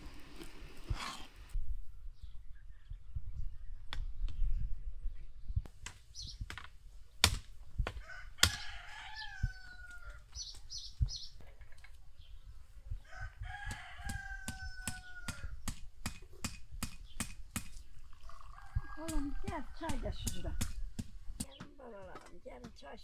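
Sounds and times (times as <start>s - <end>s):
rooster crowing: 8.0s - 10.2s, 13.0s - 15.6s, 18.2s - 20.8s.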